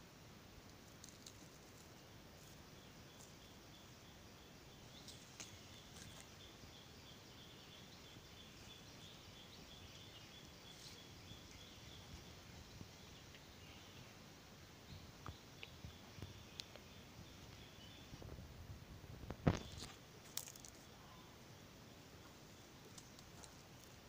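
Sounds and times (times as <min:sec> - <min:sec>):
faint steady hiss: 0:00.0 - 0:24.0
faint high-pitched chirring: 0:19.2 - 0:24.0.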